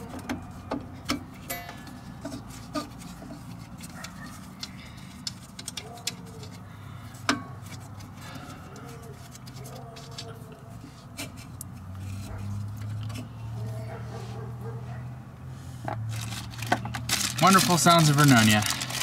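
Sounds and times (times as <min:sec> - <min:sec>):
metal tools clicking and tapping: 0:00.0 - 0:10.4.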